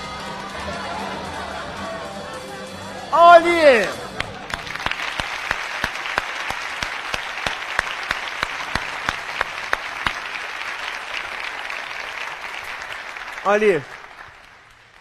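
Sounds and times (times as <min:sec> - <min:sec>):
audience applauding: 0:03.2 - 0:15.0.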